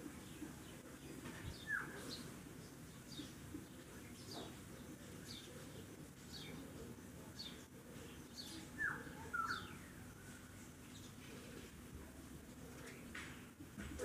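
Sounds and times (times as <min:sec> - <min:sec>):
bird chirping: 0:07.4 - 0:11.3.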